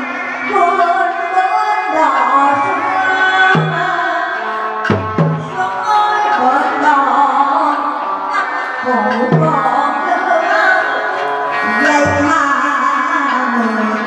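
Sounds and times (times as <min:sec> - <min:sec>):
heavy low drum strokes: 0:03.5 - 0:03.9, 0:04.9 - 0:05.6, 0:09.2 - 0:09.7.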